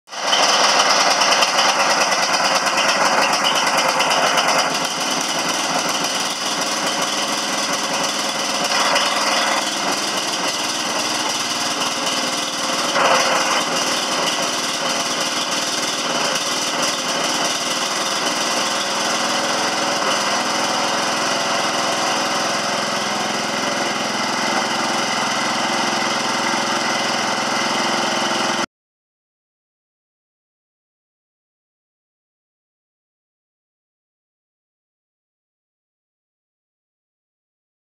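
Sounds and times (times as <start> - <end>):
garden tractor engine running: 0.1 - 28.7.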